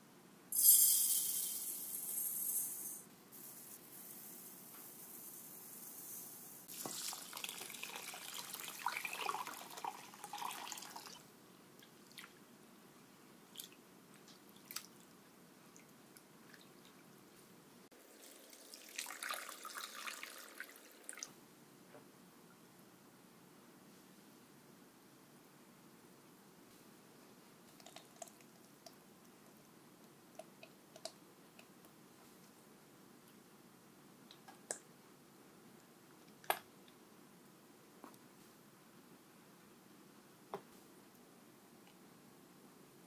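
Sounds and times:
sharp hiss: 0.5 - 6.7
water pouring into a bowl: 6.7 - 11.2, 18.1 - 21.3.

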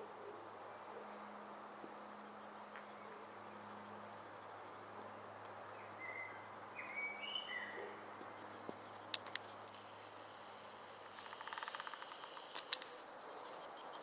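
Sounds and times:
outdoor background hiss: 0.0 - 14.0
bird chirps: 5.7 - 9.2
sharp clicks: 9.1 - 9.8, 11.2 - 13.0.

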